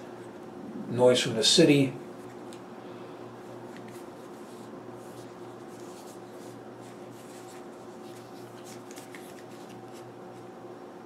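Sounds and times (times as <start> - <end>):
steady low hum: 0.0 - 11.0
plastic earmuffs rubbing and rustling: 3.5 - 10.5.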